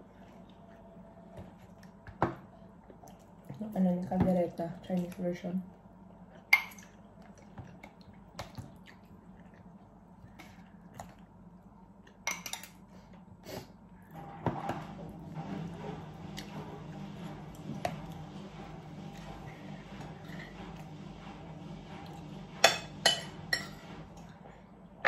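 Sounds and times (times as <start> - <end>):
soft wet food sounds: 0.0 - 14.2.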